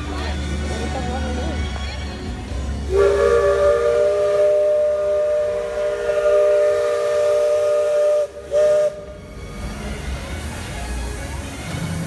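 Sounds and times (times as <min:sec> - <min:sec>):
steam whistle blowing: 0:02.9 - 0:09.2.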